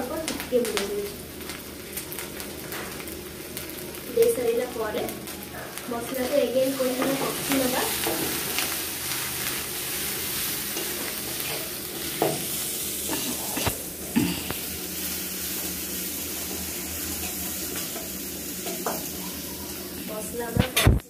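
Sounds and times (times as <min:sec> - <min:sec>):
paste sizzling in hot oil: 0:00.0 - 0:20.5
spoon knocking and scraping pan: 0:10.8 - 0:12.5.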